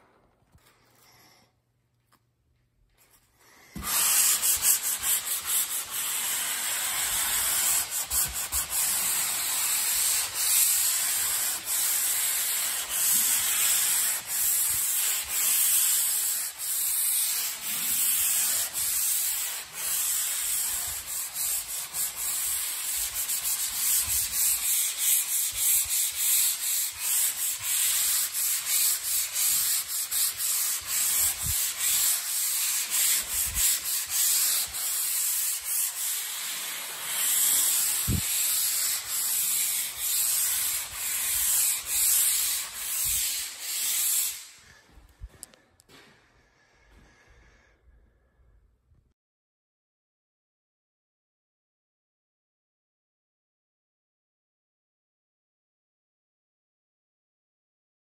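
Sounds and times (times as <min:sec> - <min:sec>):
sanding sponge rubbing drywall: 0:03.8 - 0:44.8.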